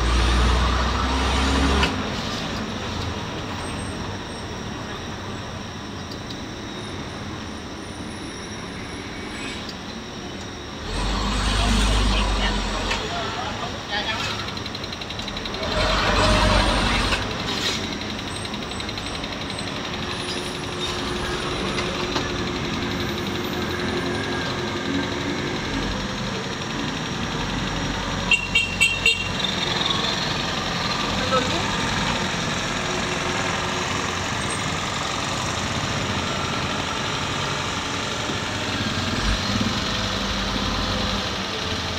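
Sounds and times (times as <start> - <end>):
bus engine and road noise: 0.0 - 41.9
vehicle horn toots: 28.3 - 29.4.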